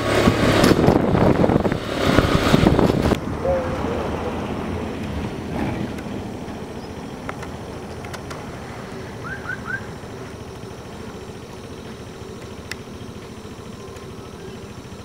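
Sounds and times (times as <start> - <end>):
low outdoor rumble: 0.0 - 15.0
quick rising chirps: 8.9 - 10.1.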